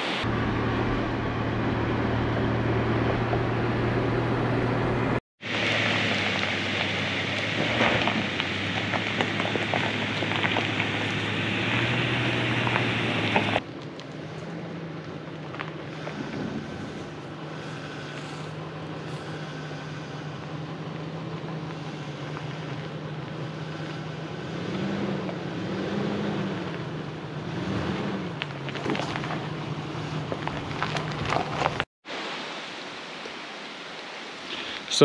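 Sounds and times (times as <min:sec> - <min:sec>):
pickup truck engine revving: 0:00.0 - 0:31.7
clicks and crunches: 0:28.4 - 0:31.9.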